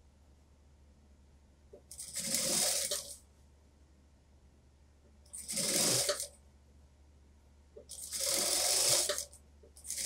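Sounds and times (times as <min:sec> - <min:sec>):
sewing machine running: 0:01.9 - 0:03.2, 0:05.3 - 0:06.3, 0:07.9 - 0:10.0.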